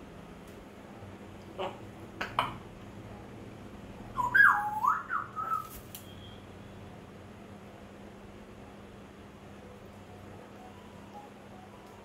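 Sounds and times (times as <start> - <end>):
parrot whistling gliding notes: 4.2 - 5.7.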